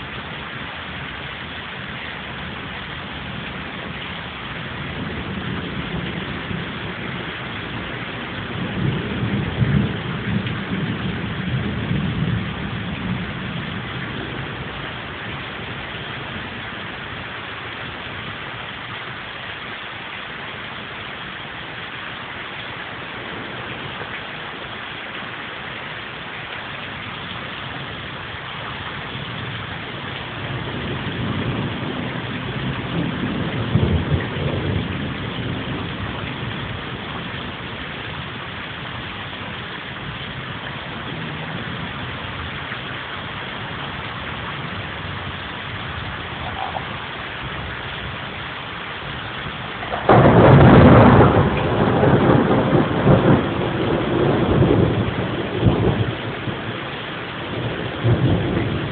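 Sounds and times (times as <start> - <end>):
steady rain: 0.0 - 58.9
rolling thunder: 2.4 - 17.3, 22.6 - 25.4, 26.0 - 42.6, 43.4 - 58.9
loud thunderclap: 4.9 - 14.7, 29.1 - 38.4, 49.4 - 58.9.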